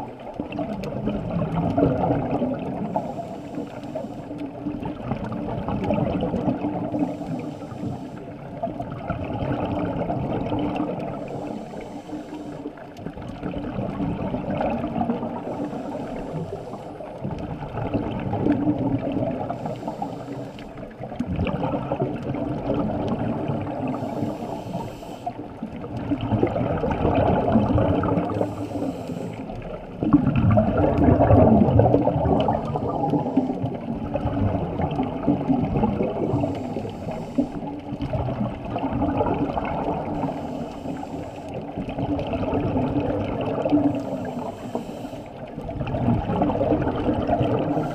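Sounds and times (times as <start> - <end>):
exhaled air bubbling: 0.0 - 47.9
regulator inhalation hiss: 3.0 - 4.4, 7.0 - 8.4, 11.2 - 12.8, 15.5 - 17.0, 19.5 - 20.8, 23.9 - 25.4, 28.3 - 29.6, 36.3 - 37.7, 40.0 - 41.6, 44.0 - 45.4.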